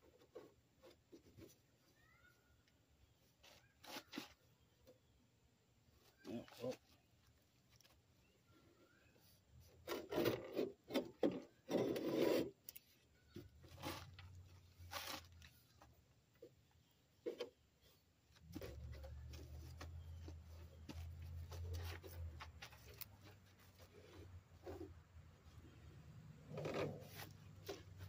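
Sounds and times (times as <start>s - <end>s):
rubbing and scraping on microphone: 3.2s - 4.6s, 9.1s - 16.6s, 17.2s - 25.5s, 26.5s - 28.0s.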